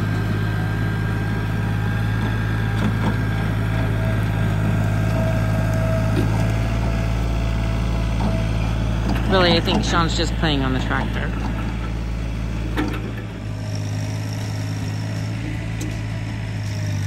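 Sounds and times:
tractor engine running: 0.0s - 17.0s
wood cracking and scraping: 2.0s - 10.2s.

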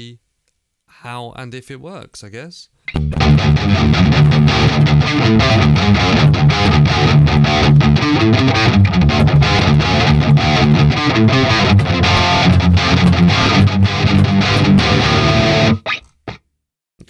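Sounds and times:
distorted electric guitar riffing: 2.9s - 16.4s.

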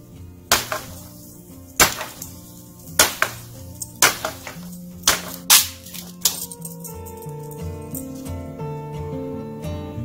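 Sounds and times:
background music with held notes: 0.0s - 10.0s
axe chopping wood: 0.5s - 6.4s.

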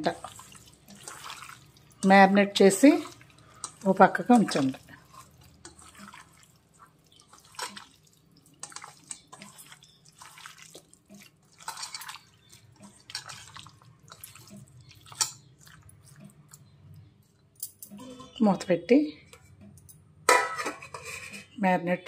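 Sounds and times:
hands squishing marinated meat: 0.0s - 17.4s.

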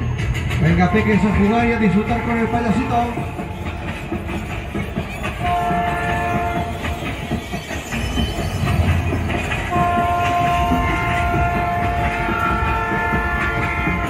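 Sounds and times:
rumble of ride cars running: 0.0s - 14.0s
ride train horn blasts: 5.4s - 7.0s, 9.6s - 14.0s.

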